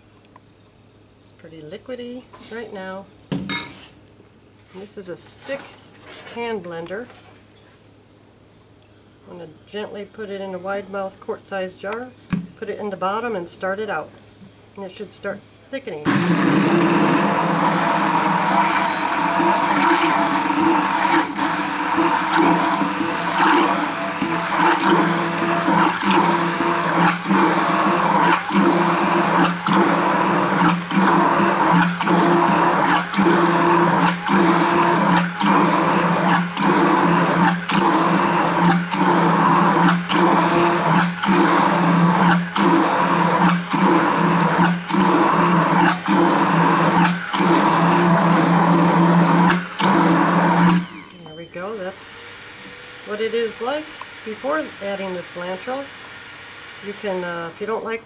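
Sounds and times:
hand blender running in glass jar: 16.2 - 51.2.

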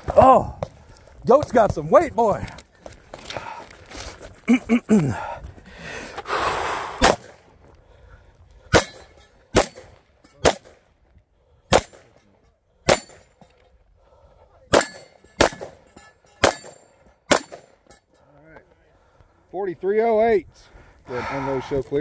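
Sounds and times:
pistol shots: 7.0 - 7.4, 8.7 - 10.8, 11.7 - 12.1, 14.7 - 17.8.

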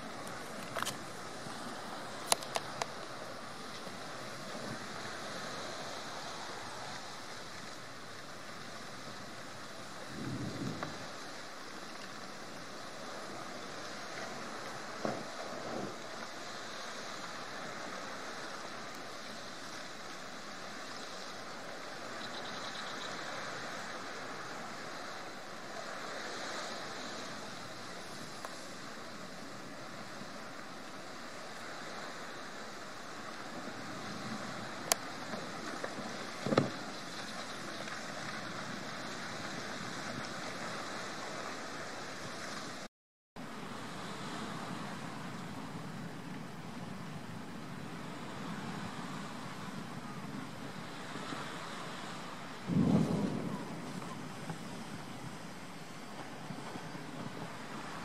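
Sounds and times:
wind on microphone: 0.0 - 11.6, 43.8 - 58.0
rushing sea water: 0.0 - 58.0.

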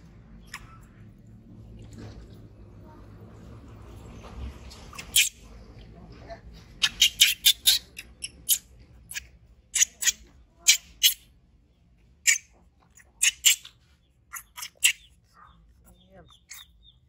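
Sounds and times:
baby monkey squeaking: 4.9 - 5.4, 6.8 - 11.2, 12.2 - 16.9.

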